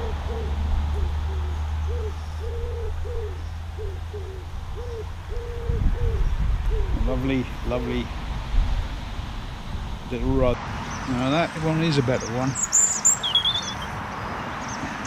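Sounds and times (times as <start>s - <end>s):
pigeon cooing: 0.0s - 7.2s.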